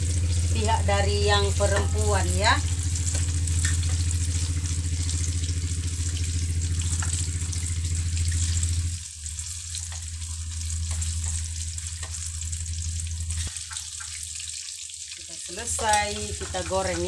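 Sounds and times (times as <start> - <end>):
loud low hum: 0.0 - 13.5
oil sizzling with crackles: 0.0 - 17.0.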